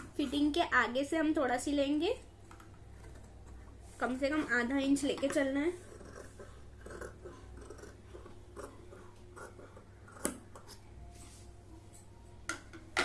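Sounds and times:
scissors snipping cloth: 10.1s - 10.8s.

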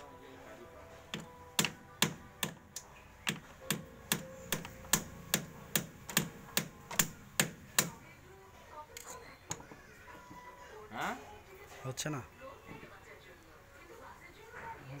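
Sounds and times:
hammer striking steel punch: 1.2s - 2.6s, 3.3s - 8.0s.

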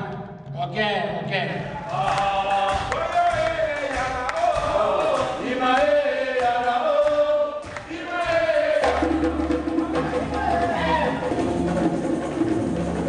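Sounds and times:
group chanting: 1.6s - 12.0s
sharp percussive hits: 2.0s - 13.0s.

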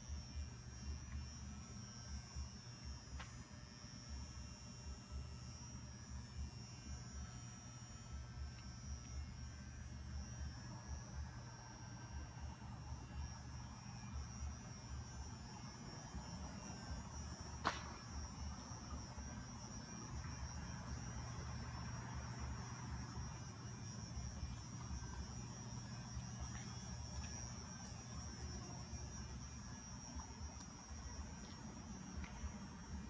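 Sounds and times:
faint high whine: 0.0s - 33.0s
steady low hum: 0.0s - 33.0s.

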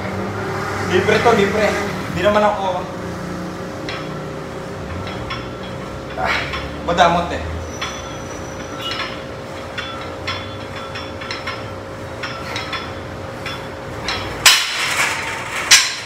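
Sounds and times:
steady low hum: 0.0s - 16.0s
metallic clinks of weight stacks: 3.7s - 16.0s
metal clatter: 3.8s - 6.9s, 7.6s - 16.0s.

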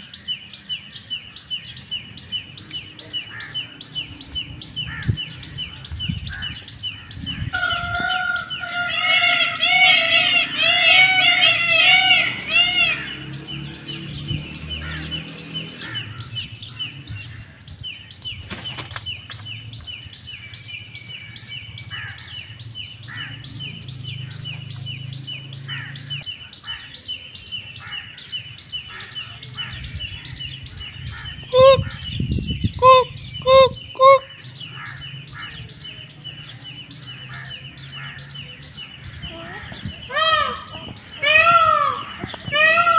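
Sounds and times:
small birds chirping: 0.0s - 42.9s
peafowl calls: 4.8s - 13.7s, 21.3s - 35.9s, 37.2s - 42.9s.

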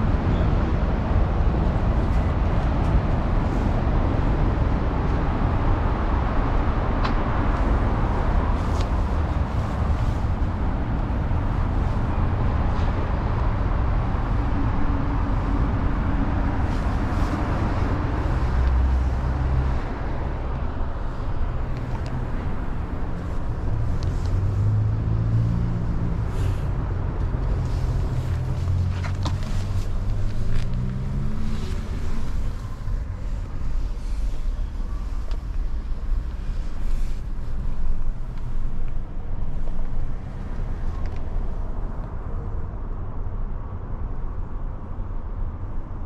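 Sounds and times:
road traffic rumble: 0.0s - 46.0s.

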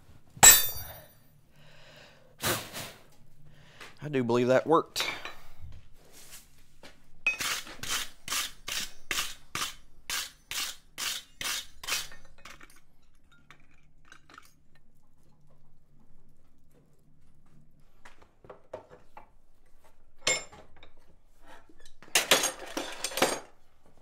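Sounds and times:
low shop hum: 0.0s - 24.0s
hand tool scraping steel bar: 7.3s - 12.7s.

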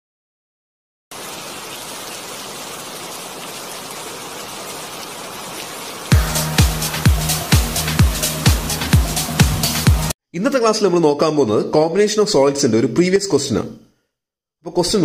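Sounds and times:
rain-like hiss: 1.1s - 8.4s
electronic dance beat: 6.1s - 10.1s.

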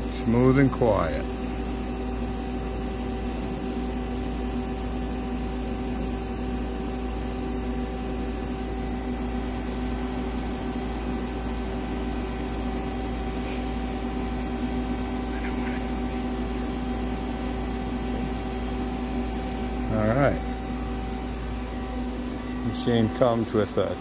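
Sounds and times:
lathe running hum: 0.0s - 24.0s
coolant spray hiss: 8.4s - 20.4s.

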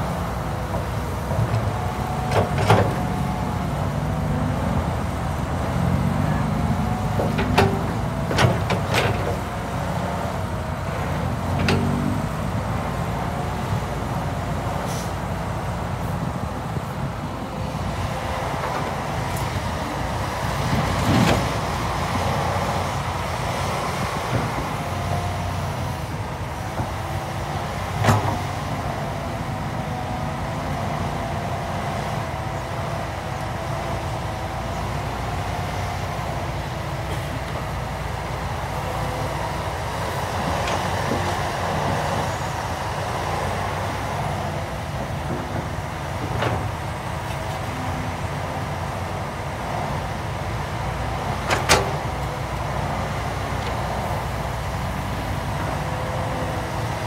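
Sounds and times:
excavator diesel engine under load: 0.0s - 57.0s
excavator bucket clunks: 7.0s - 9.5s, 28.0s - 28.5s, 51.4s - 52.3s.

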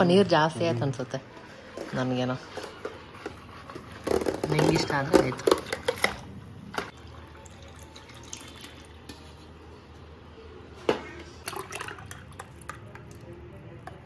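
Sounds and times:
liquid pouring into steel tumbler: 7.0s - 9.1s.

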